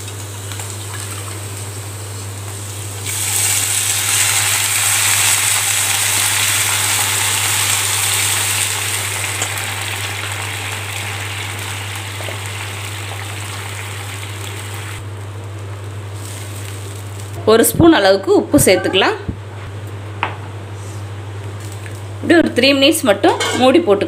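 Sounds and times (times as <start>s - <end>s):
water hissing in hot pan: 0.7s - 15.0s.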